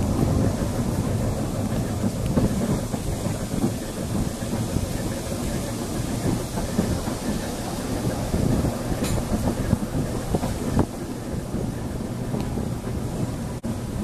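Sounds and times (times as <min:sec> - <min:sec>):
tram wheels rumbling on rails: 0:00.0 - 0:14.0.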